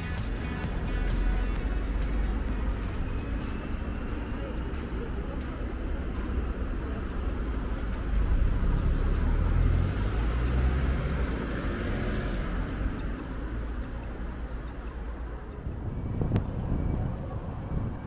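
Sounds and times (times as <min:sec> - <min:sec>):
motor vehicle passing: 0:08.0 - 0:13.2.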